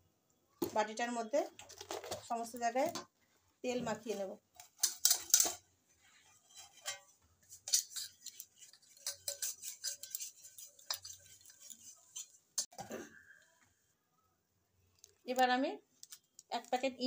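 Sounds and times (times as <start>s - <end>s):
hand rubbing inside metal bowl: 6.1s - 12.7s.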